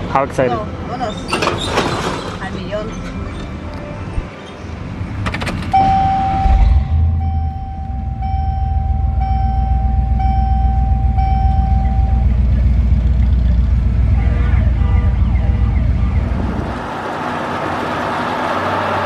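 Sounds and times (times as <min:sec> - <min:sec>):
dashboard warning chime: 0:05.7 - 0:12.7.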